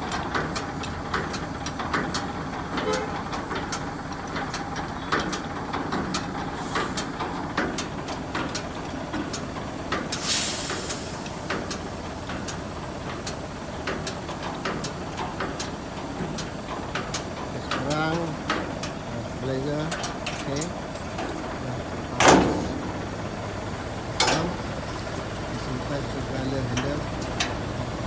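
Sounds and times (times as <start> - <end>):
truck engine idling: 0.0 - 28.0
compressed air hiss: 10.2 - 11.6.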